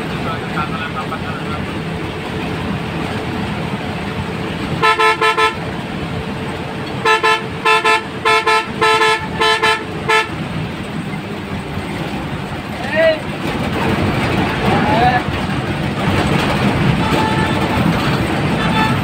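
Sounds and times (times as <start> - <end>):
engine and road noise: 0.0 - 19.0
bus horn honking: 4.6 - 5.8, 6.9 - 10.7, 16.8 - 19.0.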